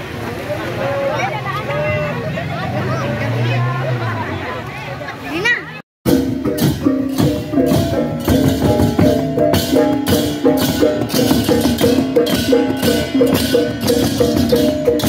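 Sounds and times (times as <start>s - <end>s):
clashing hand cymbals: 6.1s - 15.0s
small gongs struck with mallets: 6.1s - 15.0s.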